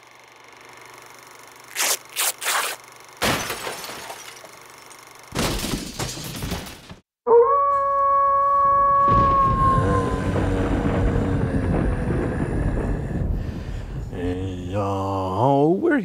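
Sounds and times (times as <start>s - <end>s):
held horn-like tone: 7.2s - 11.9s.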